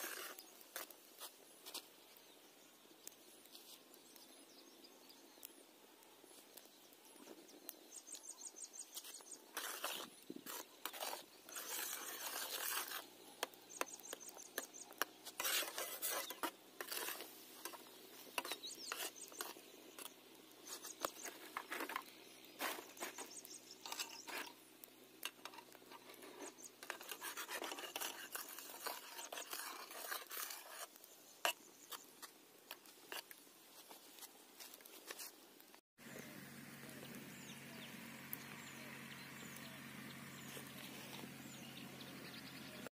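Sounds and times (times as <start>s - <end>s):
wood fire crackling: 0.0s - 35.8s
metal spatula stirring in pan: 13.7s - 22.0s, 25.2s - 31.6s.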